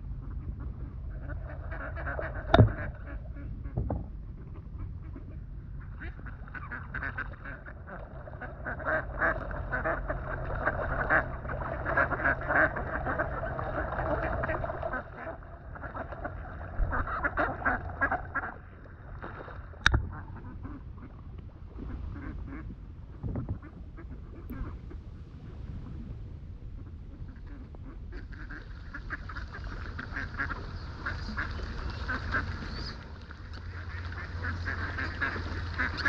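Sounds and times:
waterbirds chattering calls: 0.1 - 21.3, 27.1 - 36.0
sharp knock: 2.5 - 2.8.

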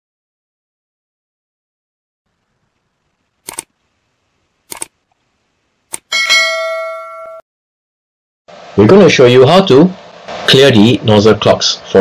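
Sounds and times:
mouse clicks: 3.4 - 3.7, 4.7 - 4.9
bell-like notification chime: 6.1 - 7.4.

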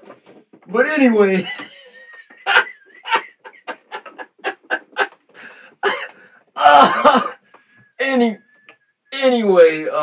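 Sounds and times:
man laughing: 1.4 - 5.2, 5.8 - 7.4.

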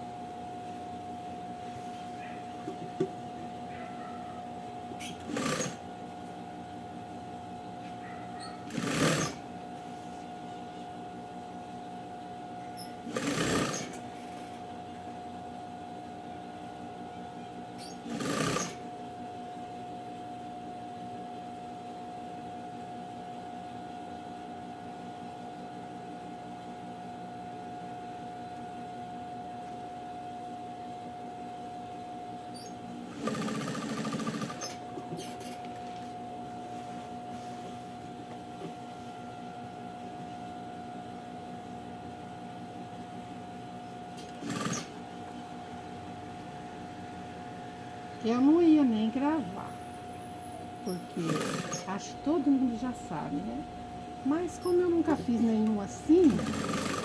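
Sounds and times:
steady hum with held tone: 0.0 - 57.0
sewing machine stitching: 5.0 - 5.8, 8.6 - 9.4, 13.0 - 14.6, 17.8 - 18.9, 33.1 - 35.6, 44.2 - 45.0, 50.9 - 51.9, 56.2 - 57.0.

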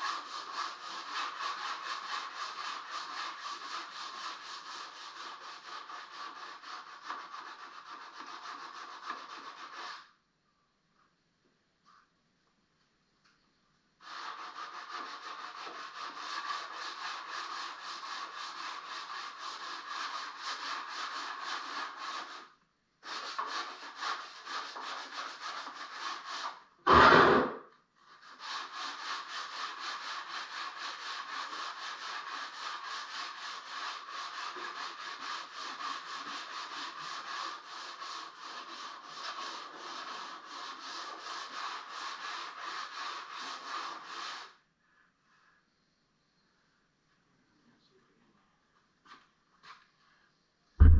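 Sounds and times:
hand sanding wood: 0.0 - 10.2, 14.0 - 26.6, 28.1 - 44.6
loud bump: 26.9 - 27.6.

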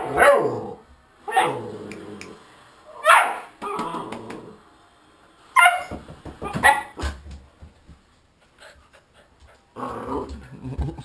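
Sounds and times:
small dog barking: 0.0 - 0.6, 1.3 - 1.6, 3.0 - 3.5, 5.6 - 7.0.

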